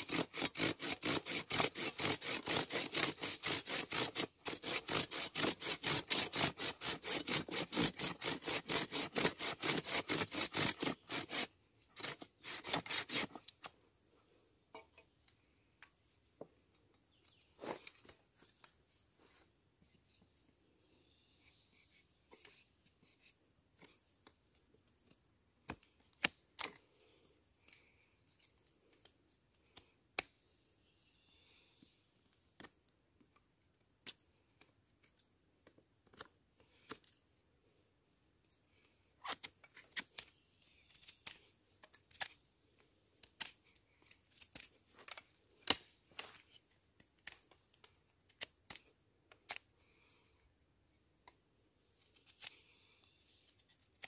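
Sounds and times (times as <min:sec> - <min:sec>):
knife whittling wood: 0:00.0 - 0:13.6.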